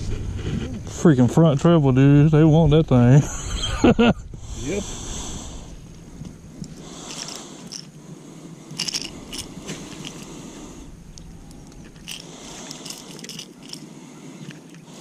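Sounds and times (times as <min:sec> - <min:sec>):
fishing lure clicking and scraping: 0:06.6 - 0:08.0, 0:08.7 - 0:10.3, 0:11.1 - 0:14.9.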